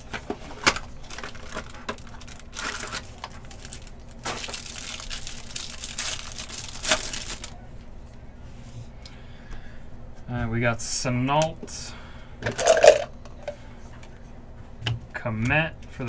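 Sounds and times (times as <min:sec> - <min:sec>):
plastic wrapper crinkling and tearing: 0:00.6 - 0:07.6.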